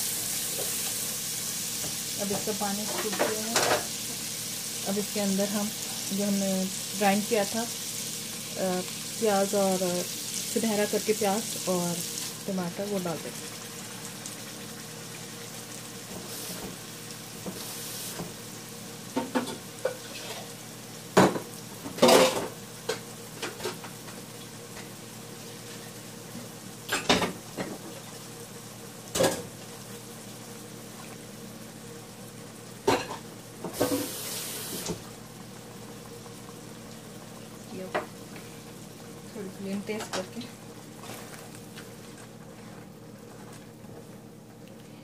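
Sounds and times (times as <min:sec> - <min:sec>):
paste sizzling in hot oil: 0:00.0 - 0:23.5, 0:32.0 - 0:40.0.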